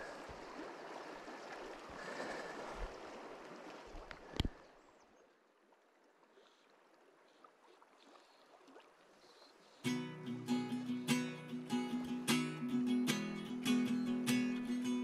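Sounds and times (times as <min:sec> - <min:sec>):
river water over stones: 0:00.0 - 0:09.9.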